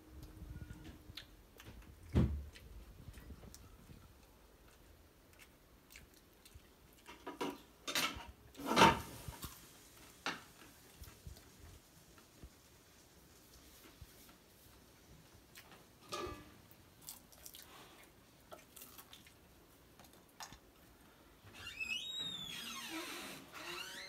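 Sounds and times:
clicks and knocks of dishes: 0:07.1 - 0:09.1.

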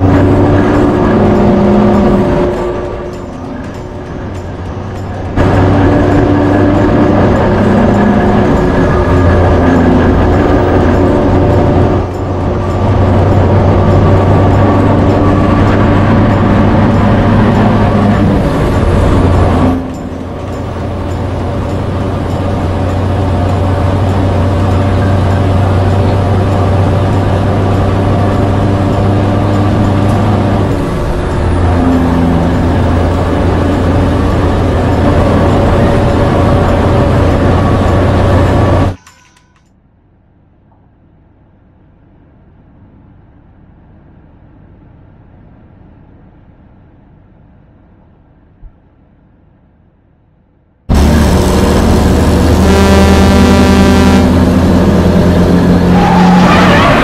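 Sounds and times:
vehicle engine and road noise: 0:00.0 - 0:57.0.

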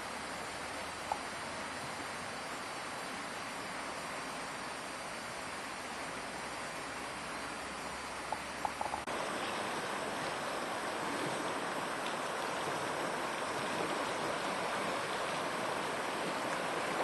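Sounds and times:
river flowing over stones: 0:09.0 - 0:17.0.

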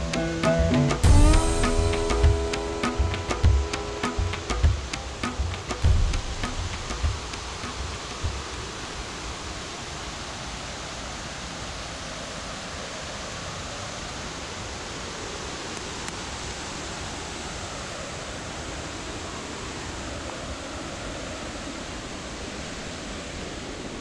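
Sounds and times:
water rushing over cascade: 0:00.0 - 0:24.0
low thump: 0:01.0 - 0:07.4.

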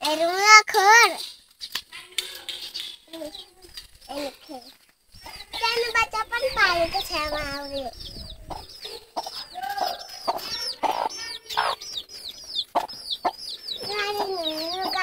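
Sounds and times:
chicks peeping: 0:01.2 - 0:15.0
hen clucking: 0:05.1 - 0:15.0.

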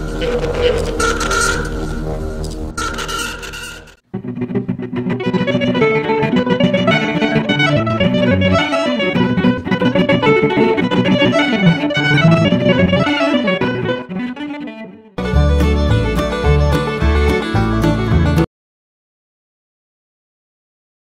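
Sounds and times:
plucked guitar background music: 0:04.1 - 0:18.5.

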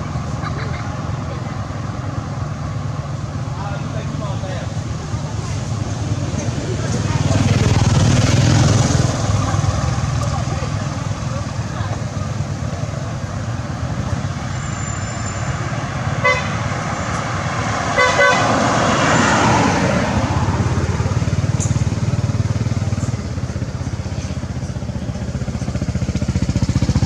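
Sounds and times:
vehicle passing: 0:00.0 - 0:27.0
vehicle horn toots: 0:16.2 - 0:16.7, 0:17.9 - 0:18.6
motorbike engine running: 0:20.4 - 0:27.0.

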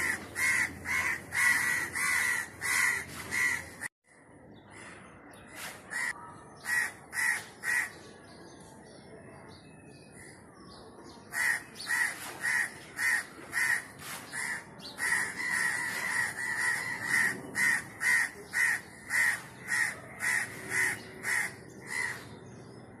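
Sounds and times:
crows cawing: 0:00.0 - 0:03.9, 0:05.9 - 0:08.0, 0:11.3 - 0:22.4.

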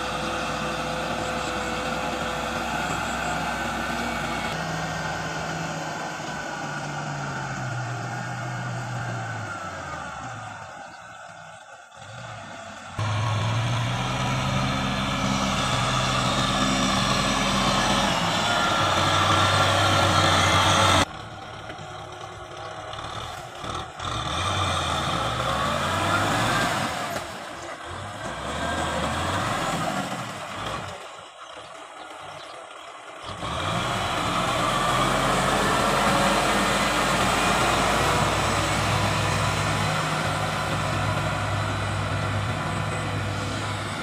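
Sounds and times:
tractor diesel engine running: 0:00.0 - 0:44.0.

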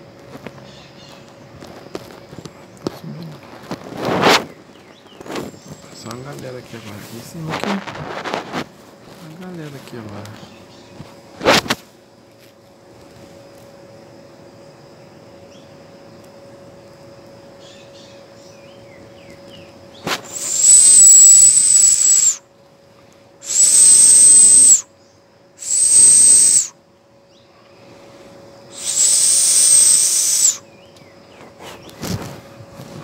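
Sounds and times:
loud hissing whistle: 0:20.0 - 0:22.5, 0:23.4 - 0:26.8, 0:28.6 - 0:30.9.

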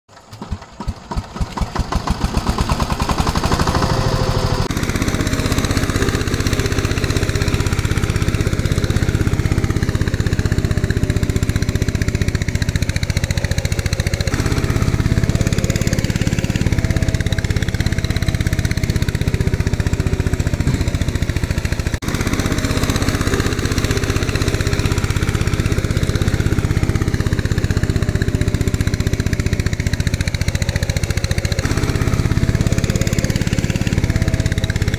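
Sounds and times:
tractor engine chugging: 0:00.1 - 0:34.9.

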